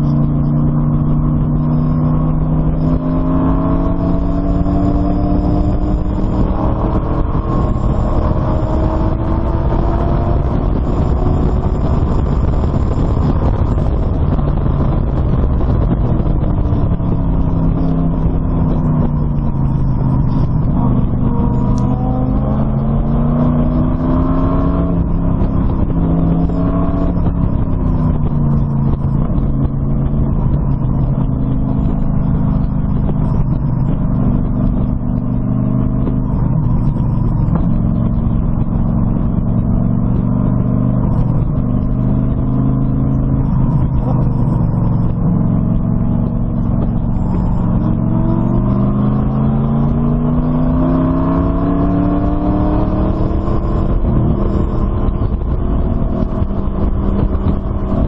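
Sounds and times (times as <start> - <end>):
race car engine revving: 0.0 - 58.0.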